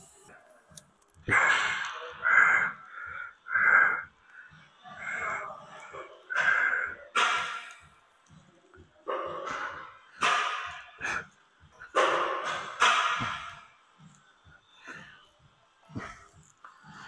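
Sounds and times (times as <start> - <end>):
man's strained breaths: 1.3 - 7.9, 10.8 - 13.6.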